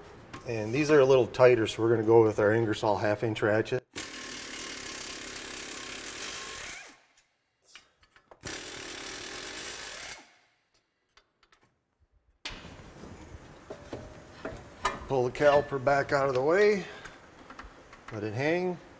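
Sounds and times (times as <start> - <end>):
air ratchet spinning: 4.0 - 7.0, 8.4 - 10.3.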